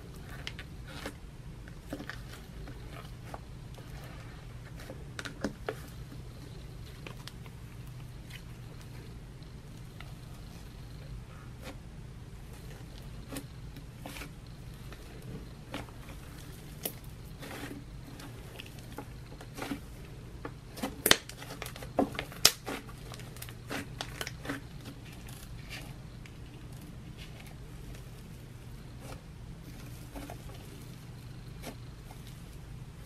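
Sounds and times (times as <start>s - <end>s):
fingers kneading slime: 0.0s - 33.0s
foam beads crackling and popping: 12.4s - 32.7s.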